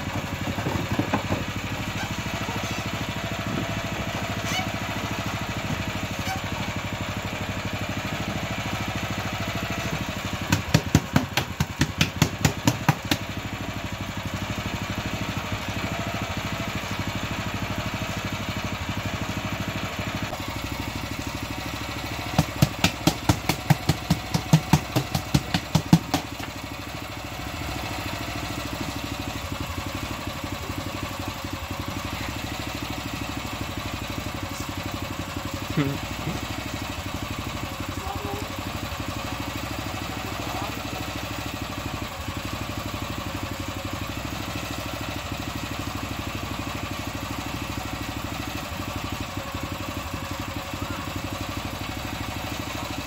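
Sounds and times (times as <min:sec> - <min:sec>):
small engine running: 0:00.0 - 0:53.0
quick evenly spaced knocks: 0:10.5 - 0:13.2, 0:22.4 - 0:26.6.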